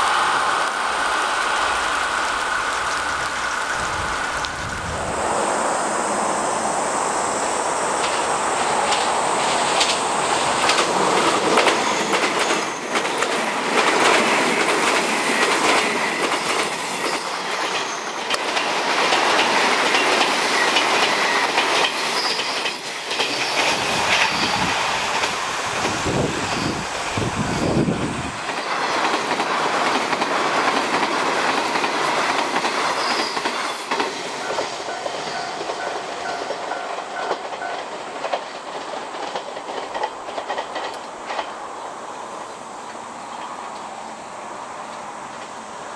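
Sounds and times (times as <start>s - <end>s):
electric train running by: 0.0s - 45.9s
wheels clicking over rail joints: 7.9s - 43.9s.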